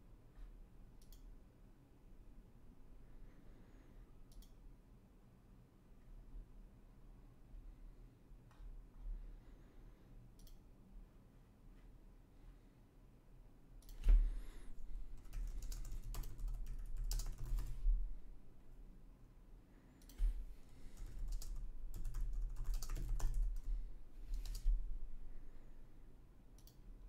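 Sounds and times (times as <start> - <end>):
typing on computer keyboard: 15.1 - 18.0, 20.8 - 24.8.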